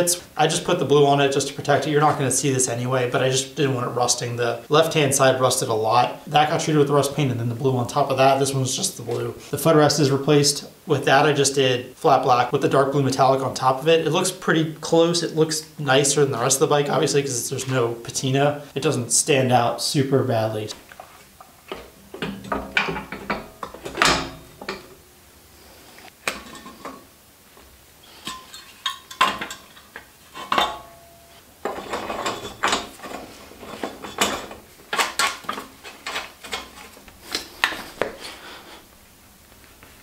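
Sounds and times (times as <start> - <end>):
metal tools clinking and knocking: 28.2 - 36.8
ringing metal clank: 30.4 - 31.4.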